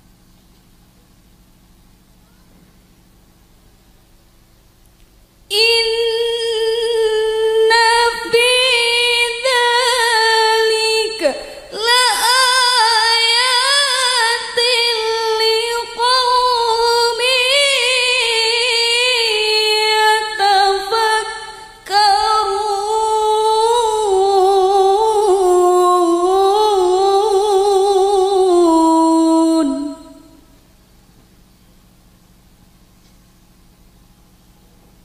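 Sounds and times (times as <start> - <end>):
woman reciting melodically: 5.5 - 30.6
breath: 11.4 - 11.7.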